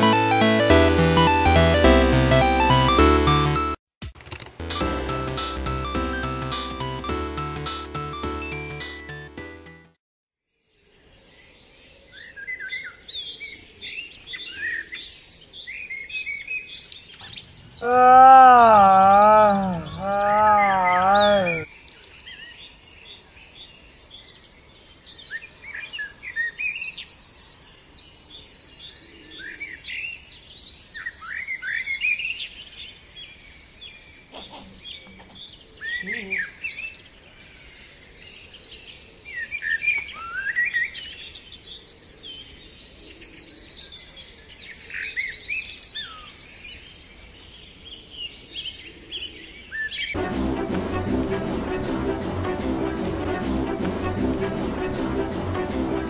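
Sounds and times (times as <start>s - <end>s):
small birds chirping and trilling: 10.8s - 50.2s
loud wavering human cry: 17.8s - 21.7s.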